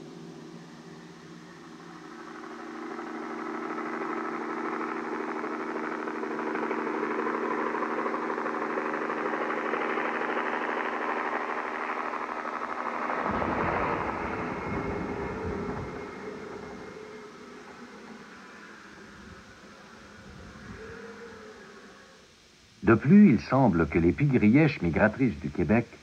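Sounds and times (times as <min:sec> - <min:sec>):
helicopter engine and rotor: 0:00.0 - 0:20.4
low rumble: 0:13.1 - 0:19.7.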